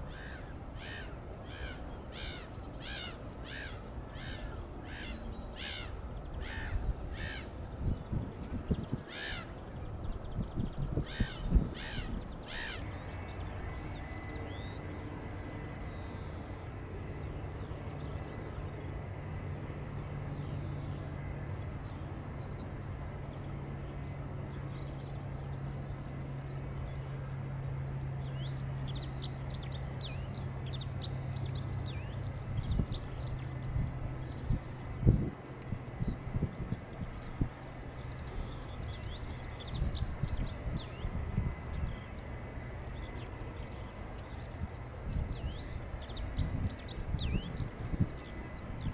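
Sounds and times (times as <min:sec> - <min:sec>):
small birds twittering: 0:00.0 - 0:16.6, 0:17.4 - 0:48.9
steady low hum: 0:00.0 - 0:48.9
harsh bird caws: 0:00.1 - 0:07.5, 0:09.1 - 0:09.5, 0:11.0 - 0:14.2.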